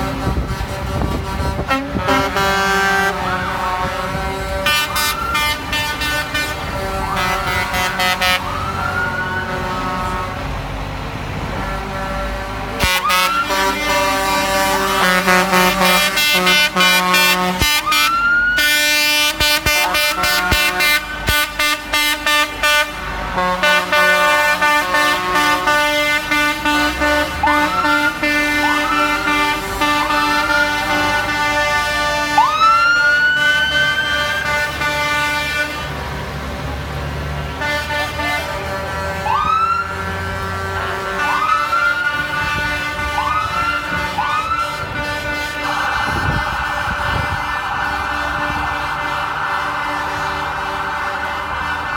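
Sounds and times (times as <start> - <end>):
diesel engines running: 0.0 - 51.9
truck air horns blasting: 0.0 - 51.9
rising whoops: 45.6 - 51.9.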